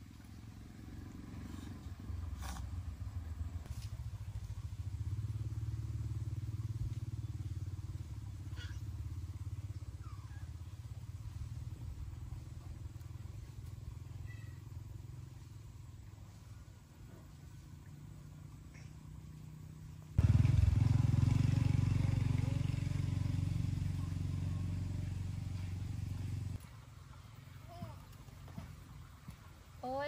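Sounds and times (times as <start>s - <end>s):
small engine running: 20.2s - 26.6s.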